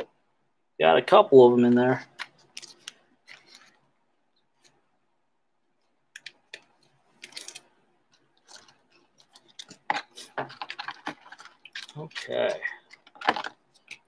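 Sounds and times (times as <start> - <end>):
trading cards rustling: 1.9 - 3.9, 6.2 - 14.0.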